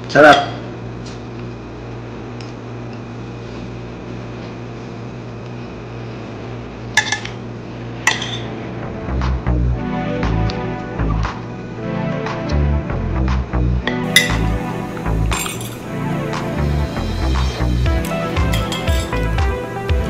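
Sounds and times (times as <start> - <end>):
steady low hum: 0.0 - 20.0
metal spoon clinking on plate: 15.3 - 15.8, 18.6 - 19.1.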